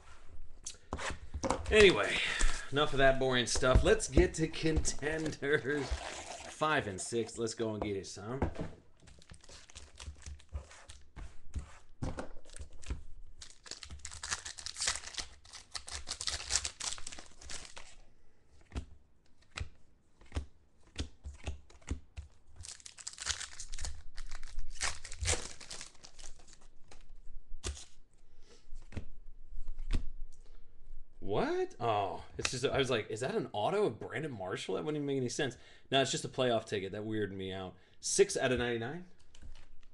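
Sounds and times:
card pack wrappers tearing: 0:09.1 - 0:11.0, 0:12.4 - 0:18.0, 0:22.6 - 0:27.0.

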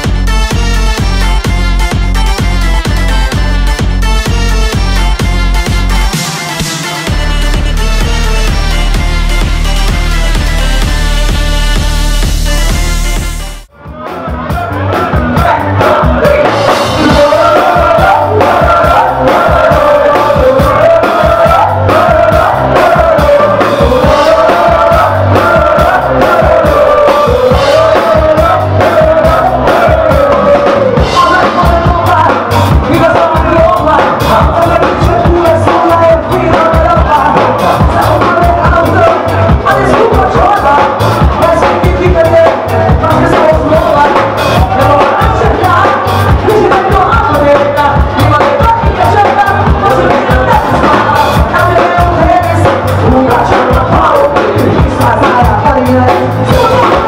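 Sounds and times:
live pop-folk music: 0:00.0 - 0:57.0
woman singing: 0:15.2 - 0:57.0.

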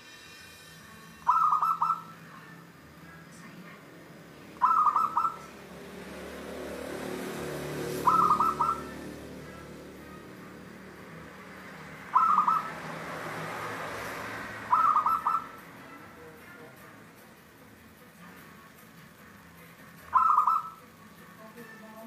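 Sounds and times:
dove cooing: 0:01.3 - 0:02.2, 0:04.6 - 0:05.6, 0:07.7 - 0:09.8, 0:12.0 - 0:13.0, 0:14.5 - 0:15.6, 0:20.1 - 0:20.8.

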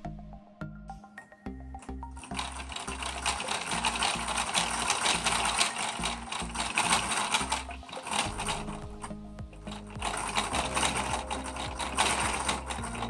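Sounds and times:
background music: 0:00.0 - 0:13.0
plastic toy gears clicking: 0:02.2 - 0:08.8, 0:09.6 - 0:13.0.

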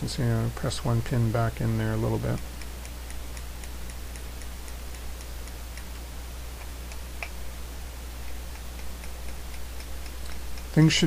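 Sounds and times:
low electrical hum: 0:00.0 - 0:11.0
steady light ticking: 0:01.6 - 0:11.0
sharp click: 0:02.3 - 0:06.0, 0:06.6 - 0:07.4.

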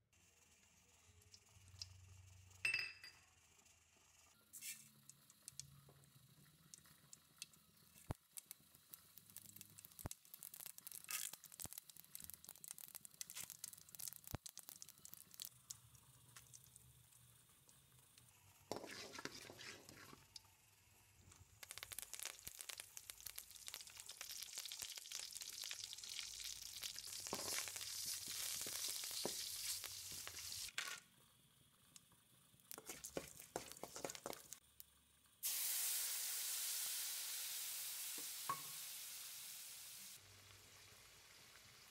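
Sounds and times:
seeds popping in hot oil: 0:04.5 - 0:39.3
food sizzling in oil: 0:06.7 - 0:16.9, 0:18.3 - 0:20.4, 0:21.4 - 0:30.9, 0:32.7 - 0:34.6, 0:35.4 - 0:41.9.

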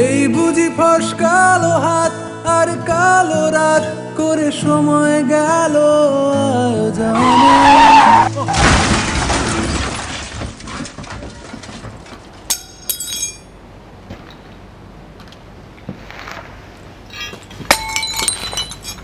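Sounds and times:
crash of noise: 0:08.3 - 0:11.8
metal fork clinking on pavement: 0:12.5 - 0:13.6, 0:17.1 - 0:19.0.

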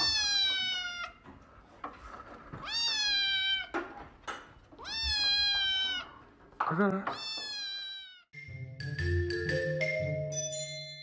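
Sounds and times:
kitten meowing: 0:00.0 - 0:01.2, 0:02.6 - 0:03.7, 0:04.8 - 0:06.1, 0:07.2 - 0:08.3.

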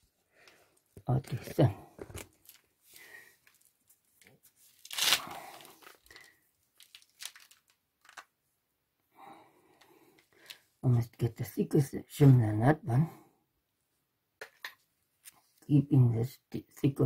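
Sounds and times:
crinkling rustle: 0:01.2 - 0:08.3.

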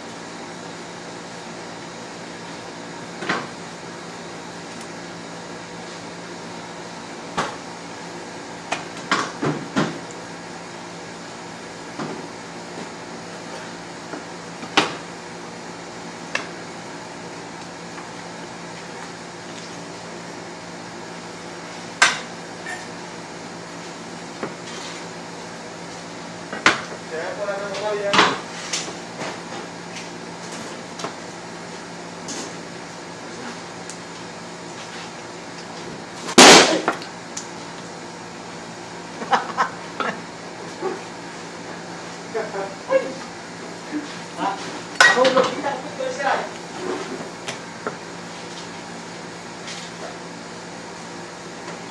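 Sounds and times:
mechanical hum: 0:00.0 - 0:51.9
loud sharp burst of noise: 0:36.4 - 0:37.0.

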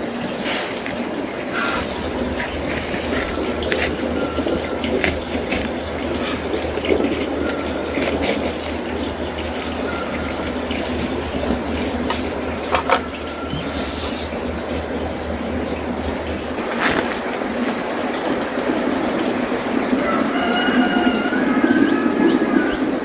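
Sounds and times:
insect high-pitched call: 0:00.3 - 0:16.6
dense even hiss: 0:00.3 - 0:17.3.

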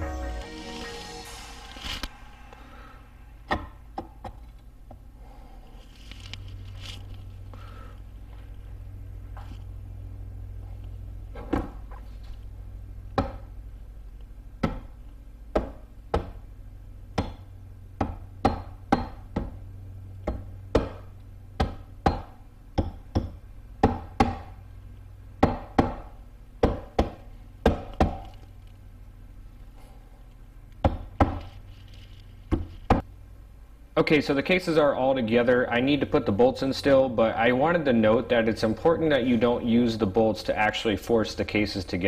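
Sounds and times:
rubber mallet tapping metal: 0:17.2 - 0:19.6, 0:21.6 - 0:24.5.

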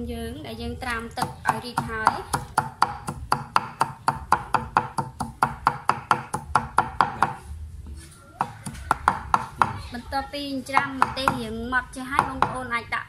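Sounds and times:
cleaver chopping on wooden board: 0:01.2 - 0:07.4, 0:08.4 - 0:09.8.

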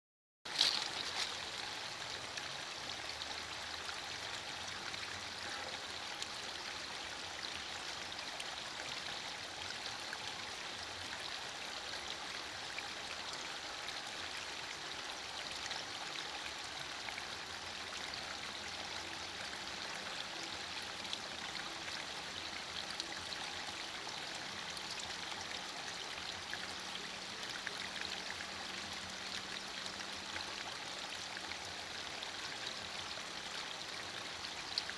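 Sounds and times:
drops dripping from leaves: 0:00.5 - 0:01.4.

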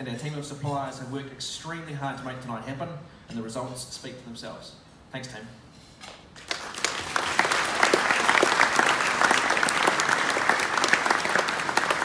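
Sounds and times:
audience applauding: 0:06.4 - 0:12.0.

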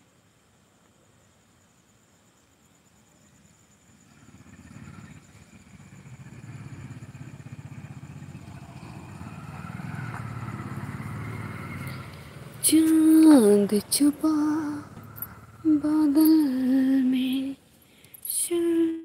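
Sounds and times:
vehicle engine pulsing: 0:04.0 - 0:18.4.

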